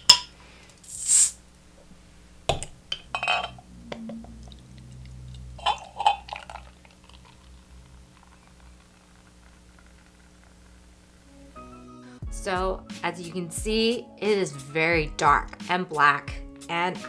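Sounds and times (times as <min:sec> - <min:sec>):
bottle cap hiss: 0:00.8 - 0:01.4
glass clinking: 0:02.5 - 0:04.6, 0:05.6 - 0:07.5
beer pouring into glass: 0:03.1 - 0:11.2.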